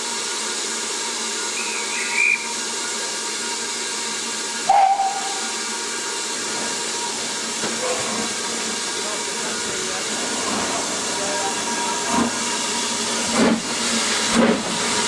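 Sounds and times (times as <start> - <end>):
steam hissing: 0.0 - 15.0
high warbling whistle: 1.5 - 2.6, 4.7 - 5.6
locomotive steam whistle blast: 1.5 - 2.7, 4.6 - 5.8.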